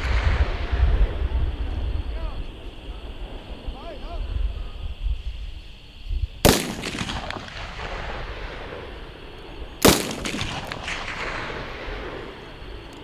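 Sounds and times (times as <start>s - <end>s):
rifle shot with rolling echo: 0.0s - 2.1s, 6.4s - 12.9s.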